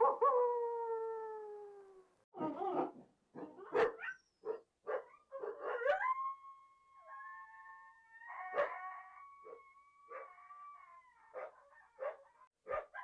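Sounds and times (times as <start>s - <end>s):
coyotes barking and yipping: 2.4s - 6.1s, 8.3s - 13.0s
coyotes howling: 5.7s - 12.5s.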